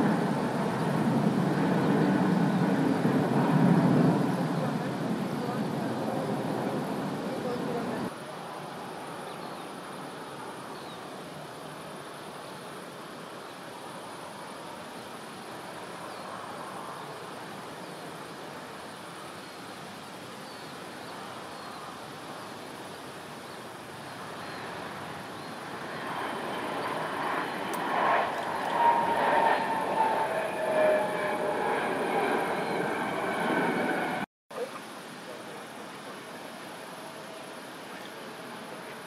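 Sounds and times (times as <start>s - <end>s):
jet engines whining: 24.6s - 34.3s.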